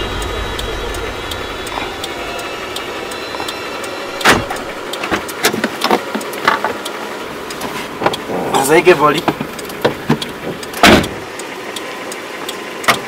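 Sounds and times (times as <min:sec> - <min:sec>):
car engine rumble: 0:00.0 - 0:13.0
sharp clunk: 0:04.1 - 0:05.6, 0:10.8 - 0:11.2.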